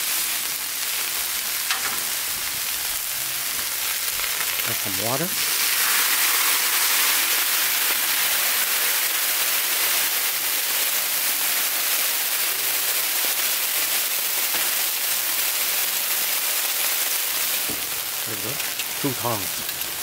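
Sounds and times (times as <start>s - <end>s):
water sizzling on hot griddle: 0.0s - 20.0s.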